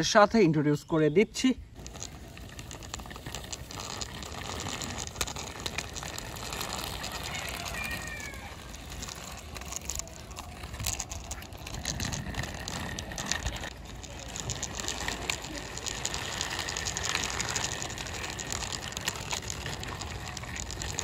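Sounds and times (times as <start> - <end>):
plastic toy wheels rattling on concrete: 1.4 - 21.0.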